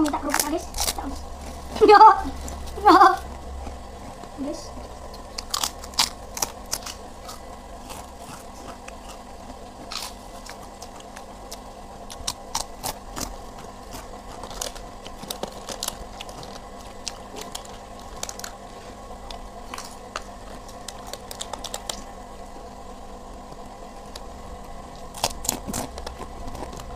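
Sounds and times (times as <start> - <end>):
cardboard and plastic rustling: 0.0 - 3.4, 12.9 - 19.0, 25.2 - 26.9
crunchy crackers crunching: 0.0 - 22.5, 23.3 - 26.9
steady low hum: 0.0 - 26.9.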